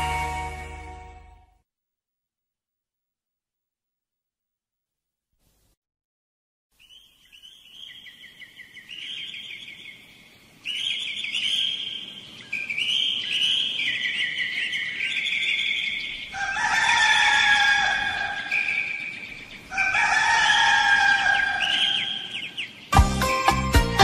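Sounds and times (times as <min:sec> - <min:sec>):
birds chirping trills: 0:06.8 - 0:24.0
rooster crowing: 0:16.2 - 0:19.0, 0:19.7 - 0:22.5.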